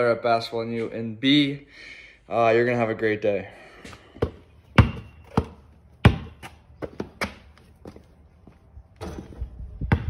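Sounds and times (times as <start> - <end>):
basketball bouncing on asphalt: 3.8 - 10.0.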